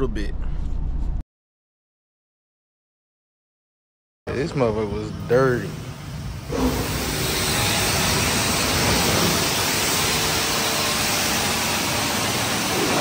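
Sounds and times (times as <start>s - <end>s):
high-pressure water spray hissing: 5.4s - 13.0s.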